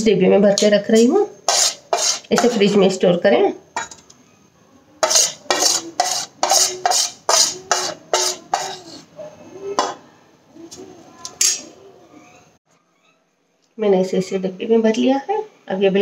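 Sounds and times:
spoon scraping steel plate: 0:01.4 - 0:02.8, 0:05.0 - 0:09.1.

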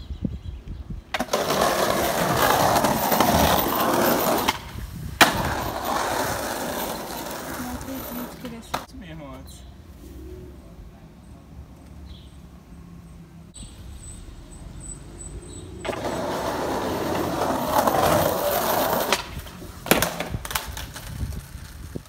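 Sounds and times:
skateboard wheels rolling on concrete: 0:00.6 - 0:09.2, 0:14.5 - 0:22.0
skateboard clacking on ground: 0:15.8 - 0:22.0.

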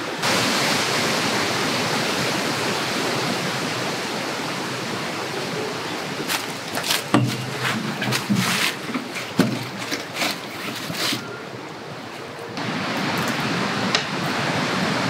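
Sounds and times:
wind rushing through trees: 0:00.0 - 0:15.0
tent knocks and rustles: 0:06.2 - 0:11.4.

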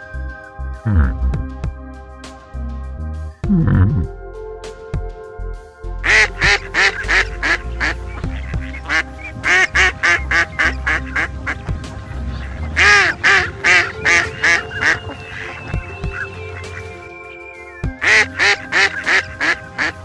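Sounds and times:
background music with sustained tones: 0:00.0 - 0:20.0
duck quacking: 0:06.0 - 0:16.2, 0:18.0 - 0:20.0.

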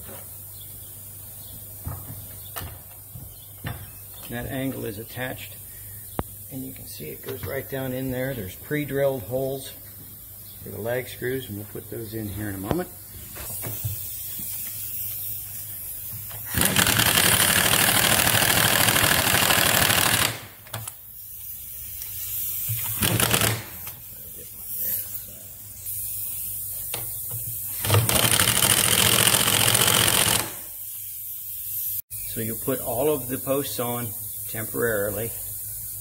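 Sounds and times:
impact driver hammering screws: 0:16.4 - 0:20.9, 0:22.7 - 0:24.0, 0:27.8 - 0:30.7.

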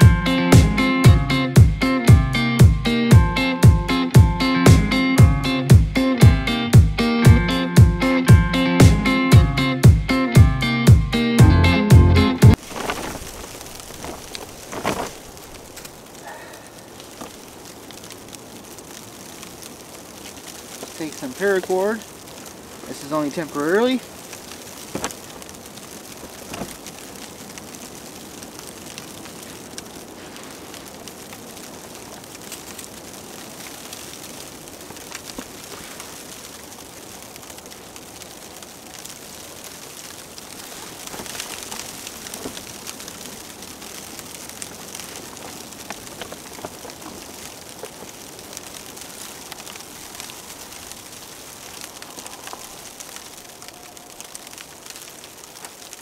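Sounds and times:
snowstorm wind hiss: 0:12.5 - 0:56.0
cord ticks and rustles: 0:12.6 - 0:16.4, 0:40.0 - 0:56.0.

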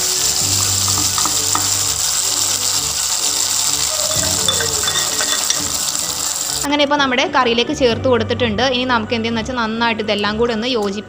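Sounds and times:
hot oil sizzling: 0:00.0 - 0:06.7.

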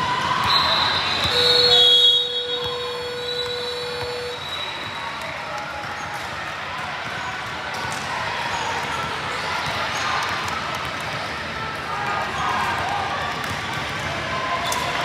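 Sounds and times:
basketball bouncing on court: 0:00.1 - 0:04.5, 0:12.7 - 0:14.2.

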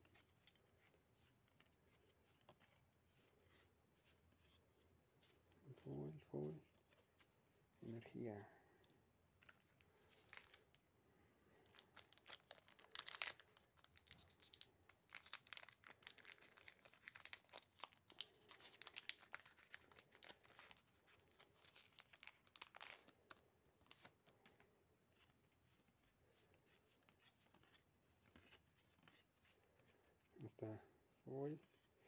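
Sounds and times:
foil wrapper crinkling and tearing: 0:11.6 - 0:24.1.

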